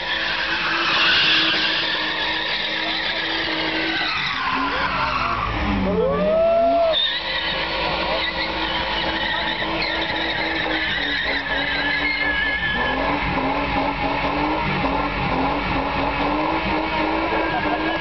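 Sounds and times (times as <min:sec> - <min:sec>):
tyres squealing: 0:00.0 - 0:05.6, 0:06.7 - 0:13.2
car engine revving high: 0:00.0 - 0:18.0.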